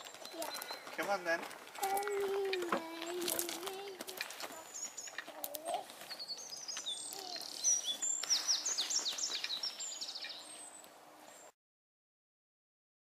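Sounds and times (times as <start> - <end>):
songbirds singing: 0.0 - 11.5.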